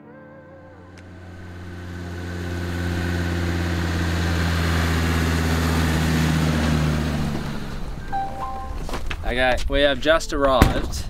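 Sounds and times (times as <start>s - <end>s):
diesel vehicle driving past: 0.7s - 9.2s
tyre noise: 3.1s - 11.0s.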